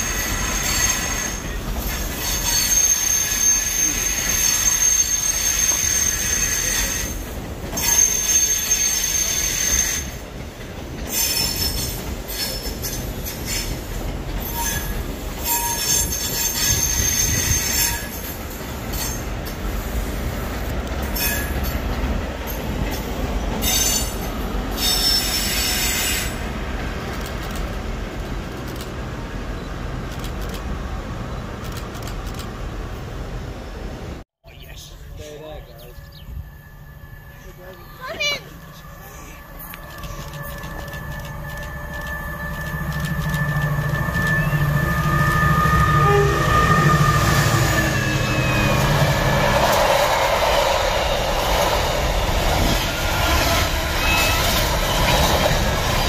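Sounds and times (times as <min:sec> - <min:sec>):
wheel flange squeal: 0:00.0 - 0:10.2, 0:14.4 - 0:19.2, 0:23.6 - 0:26.4, 0:35.8 - 0:49.8, 0:52.7 - 0:56.0
train wheels rumbling on rail: 0:00.0 - 0:56.0.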